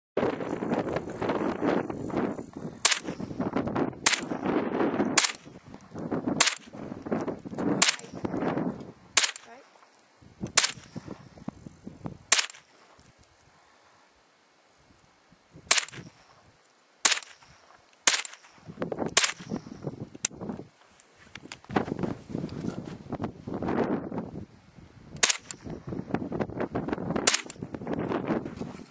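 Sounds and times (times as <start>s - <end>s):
rifle shots: 2.8s - 3.2s, 4.0s - 4.4s, 5.1s - 5.5s, 6.4s - 6.7s, 7.8s - 8.2s, 9.2s - 9.5s, 10.5s - 11.0s, 12.3s - 12.7s, 15.7s - 16.1s, 17.0s - 19.5s, 25.2s - 25.6s, 27.2s - 27.6s.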